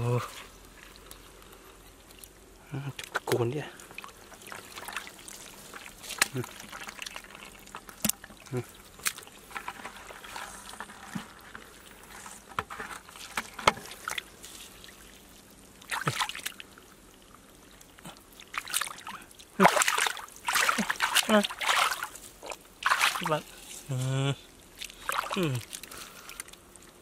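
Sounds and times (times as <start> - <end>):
mud squelching: 0.0 - 27.0
water drips and trickles: 0.1 - 27.0
hands splashing in mud: 15.8 - 16.6, 18.5 - 23.4.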